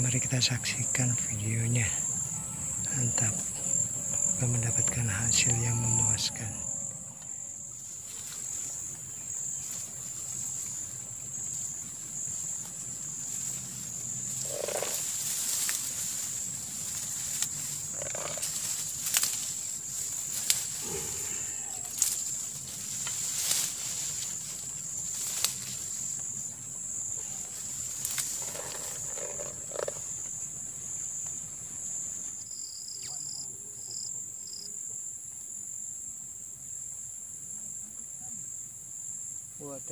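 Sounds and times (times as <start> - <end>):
short low calls: 0.0 - 7.9, 20.7 - 22.2
insects droning: 0.0 - 39.9.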